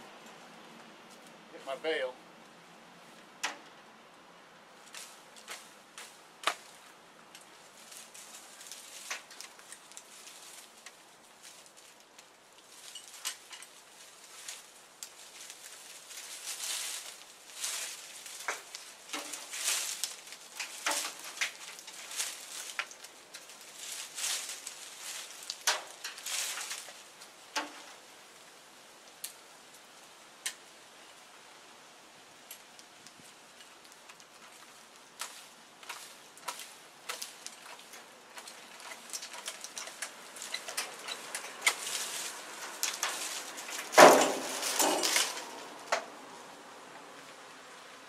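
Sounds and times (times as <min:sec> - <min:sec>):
rustling and scraping handling noises: 0:04.7 - 0:28.1, 0:32.6 - 0:46.2.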